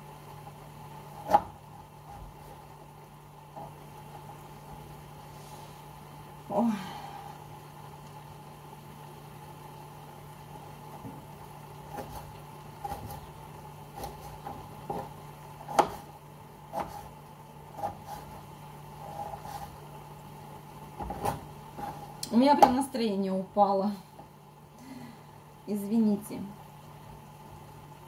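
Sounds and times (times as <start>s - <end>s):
steady hum: 0.0s - 28.0s
knife chopping on cutting board: 1.2s - 1.6s, 13.9s - 16.1s, 16.7s - 17.1s.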